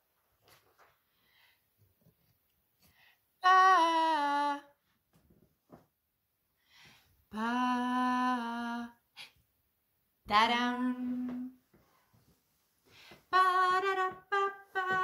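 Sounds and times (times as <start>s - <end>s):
woman singing: 3.4s - 4.8s, 7.3s - 9.0s, 10.2s - 11.6s, 13.2s - 15.0s.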